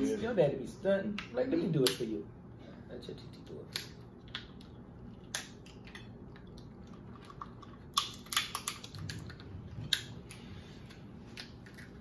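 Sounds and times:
lobster shell cracking: 3.7s - 10.1s.

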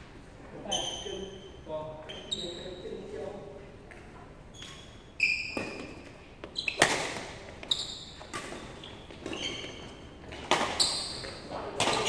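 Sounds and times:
sneakers squeaking on court: 0.7s - 3.0s, 4.5s - 12.0s
rackets striking shuttlecock: 6.7s - 9.2s.

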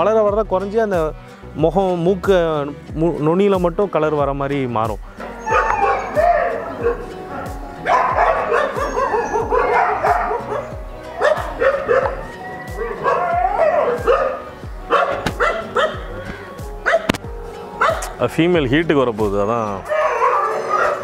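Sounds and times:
background music with steady beat: 0.0s - 21.0s
dogs yelping and barking: 5.2s - 18.2s, 19.4s - 21.0s.

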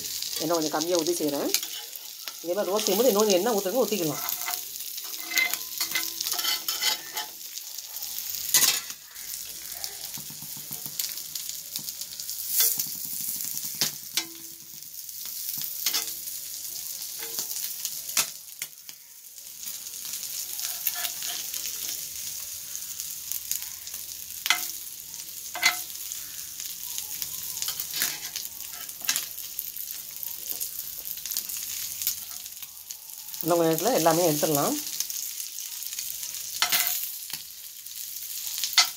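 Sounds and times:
fish sizzling in a skillet: 0.0s - 38.9s
metal spatula scraping a pan: 1.5s - 3.1s, 3.9s - 9.4s, 12.2s - 14.5s, 15.8s - 16.2s, 20.6s - 22.1s, 25.5s - 26.2s, 27.6s - 29.3s, 36.5s - 37.1s.

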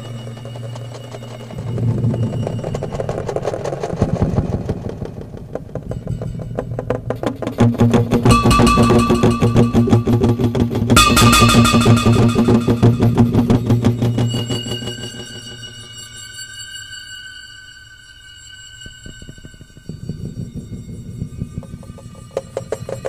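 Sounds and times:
low drone: 0.1s - 15.6s
fast clicking pulse: 1.6s - 14.1s
higher sustained tones: 7.6s - 20.0s.

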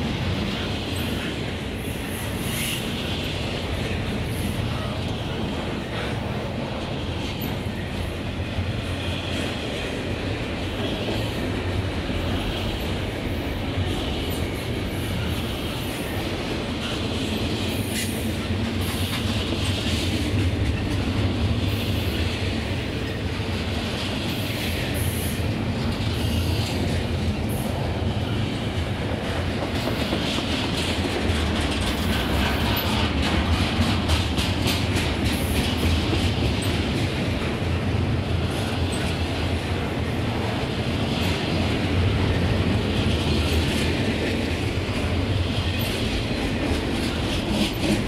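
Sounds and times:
wheels rumbling on rail: 0.0s - 48.0s
wheels clicking over rail joints: 13.8s - 48.0s.

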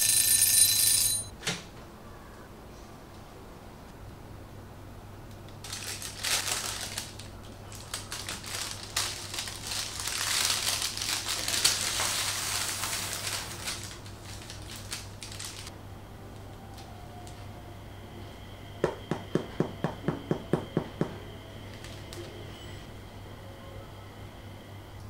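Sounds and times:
baking parchment crinkling: 5.6s - 15.7s.

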